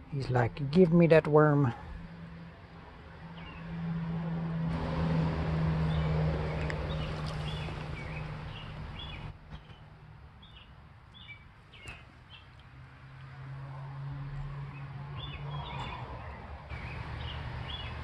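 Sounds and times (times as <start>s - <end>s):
small birds chirping: 5.9s - 12.7s, 14.7s - 18.0s.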